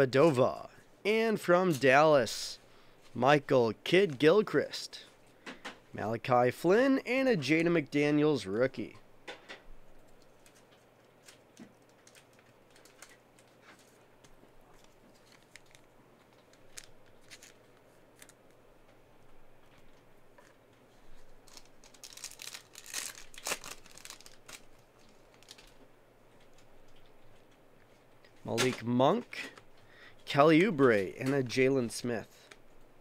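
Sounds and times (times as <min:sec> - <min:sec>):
cards clicking and rustling: 0:10.0 - 0:18.6, 0:21.4 - 0:25.8
foil wrapper crinkling and tearing: 0:14.8 - 0:18.4, 0:21.1 - 0:25.8.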